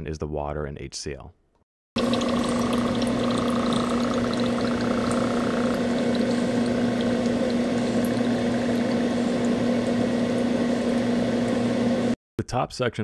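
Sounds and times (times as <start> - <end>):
electric water pump humming: 2.0 - 12.2
water flowing: 2.0 - 12.2.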